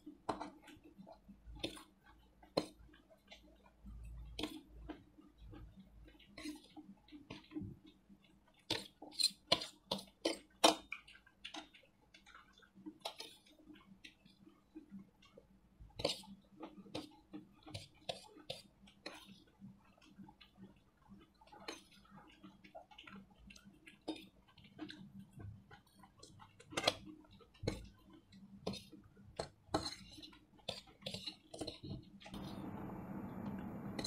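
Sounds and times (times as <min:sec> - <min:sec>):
chewing and slurping noodles: 0:00.0 - 0:34.0.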